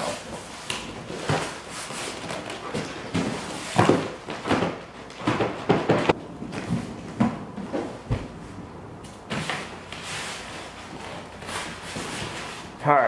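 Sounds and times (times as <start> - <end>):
cardboard rubbing and scraping: 9.4 - 12.7.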